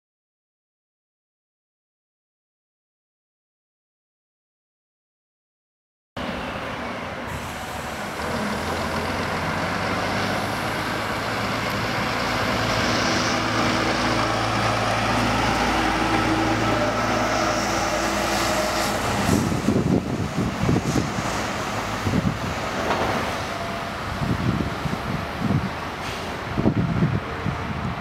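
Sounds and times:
diesel truck engine running: 6.2 - 28.0
wind buffeting microphone: 18.6 - 28.0.

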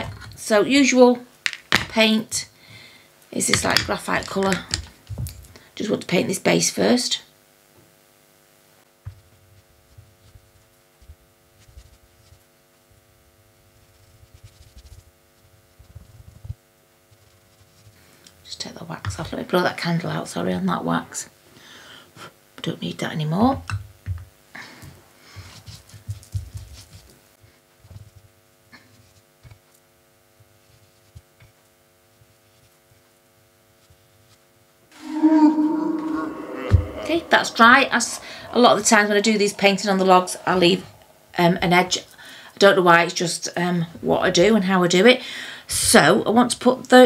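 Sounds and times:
steady hum: 34.9 - 43.0.

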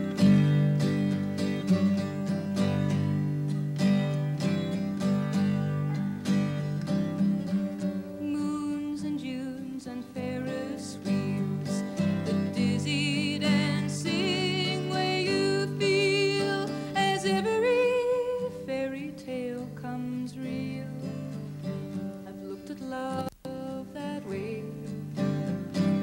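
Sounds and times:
strummed acoustic guitar: 0.0 - 26.0
woman singing: 7.8 - 26.0.

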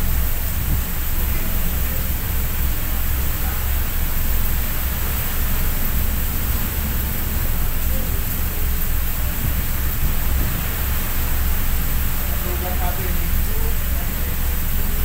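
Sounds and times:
wind buffeting microphone: 0.0 - 2.9, 4.8 - 13.8
rain hiss: 0.0 - 15.0
rough sea: 0.0 - 15.0.

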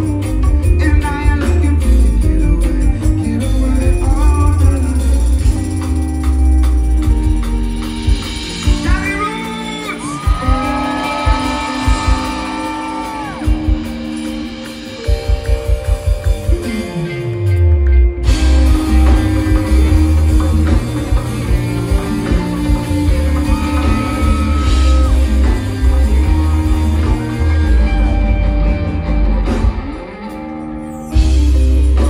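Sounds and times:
heavy bass line: 0.0 - 32.0
reggae band playing live: 0.0 - 32.0.

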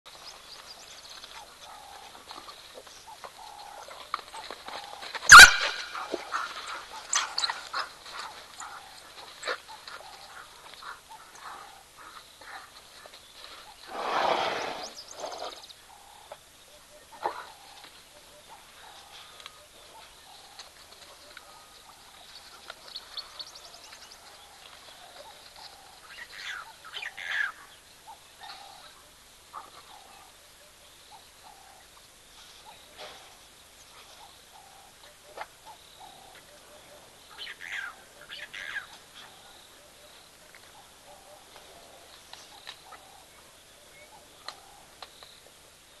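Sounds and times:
wild dogs high-pitched chirping: 3.1 - 13.7, 34.0 - 44.9
wild dog sharp call: 5.2 - 12.7.

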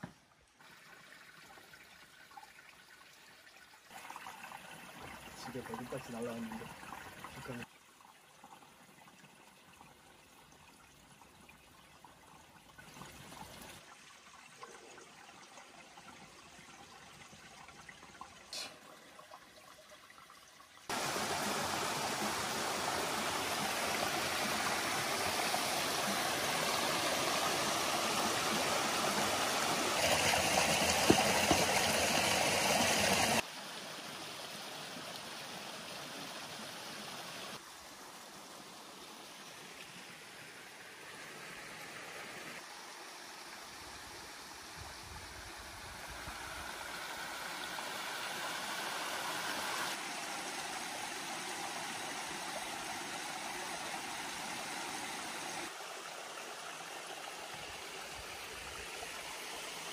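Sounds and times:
stream rushing over rocks: 20.9 - 44.8, 45.4 - 59.9.

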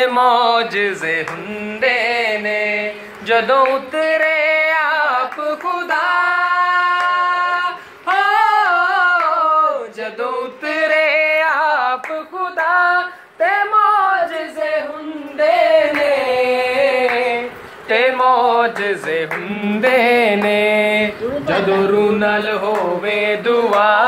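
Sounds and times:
solo voice singing: 0.0 - 24.0.

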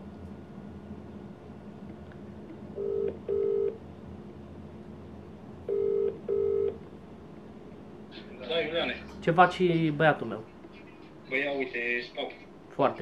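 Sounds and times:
phone ringback tone: 2.8 - 3.8, 5.7 - 6.8.

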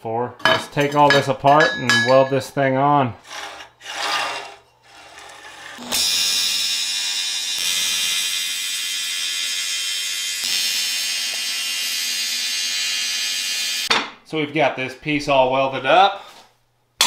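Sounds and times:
welding arc buzzing: 4.9 - 13.9.

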